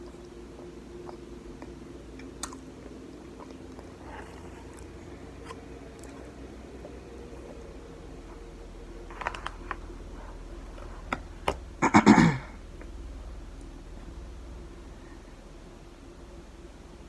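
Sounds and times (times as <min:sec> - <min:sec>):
woman crunching food: 0:00.0 - 0:08.3.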